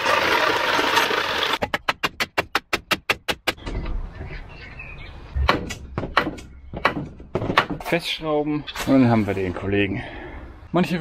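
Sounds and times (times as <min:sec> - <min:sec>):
power tool cutting wood: 0:00.0 - 0:01.6.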